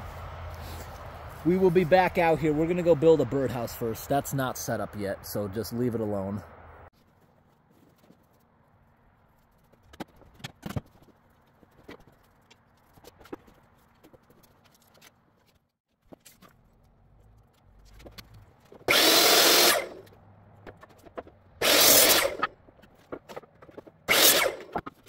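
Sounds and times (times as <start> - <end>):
miter saw cutting wood: 18.8 - 20.1, 20.8 - 22.6, 23.3 - 25.0
boards knocking and clattering: 20.6 - 21.6, 22.6 - 24.1.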